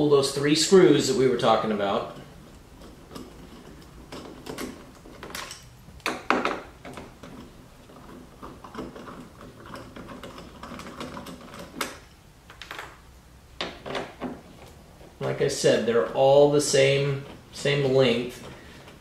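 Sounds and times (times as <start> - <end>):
clicks and scrapes of screws: 1.7 - 13.0.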